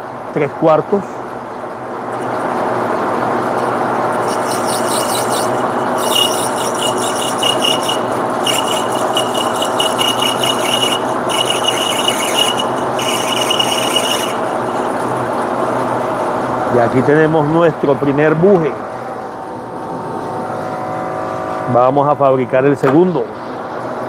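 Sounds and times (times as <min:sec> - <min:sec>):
lathe humming: 0:04.0 - 0:16.6
lathe tool squealing on brass: 0:04.2 - 0:15.0.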